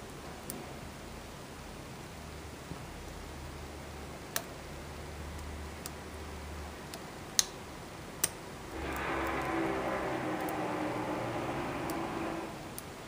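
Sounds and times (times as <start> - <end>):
faint hum: 8.7 - 13.0.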